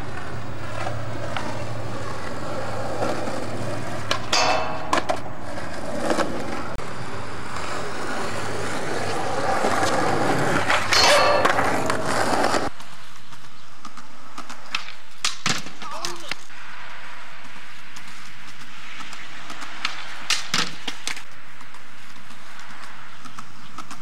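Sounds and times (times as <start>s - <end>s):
skateboard clacks: 0.0s - 16.5s, 17.4s - 24.0s
skateboard wheels rolling on concrete: 0.0s - 24.0s
skateboard grinding on metal rail: 0.1s - 12.7s.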